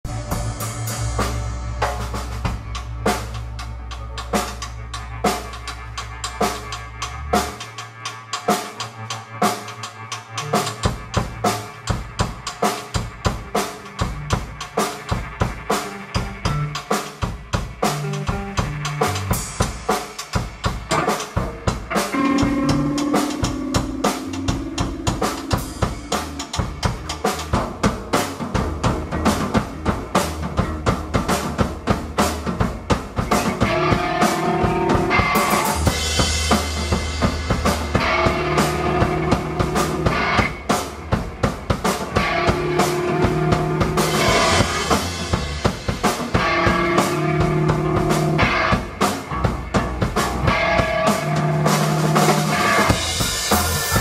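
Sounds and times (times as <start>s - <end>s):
electric bass guitar: 0.0s - 12.4s, 13.0s - 19.8s, 20.7s - 54.0s
drum kit beat: 0.0s - 54.0s.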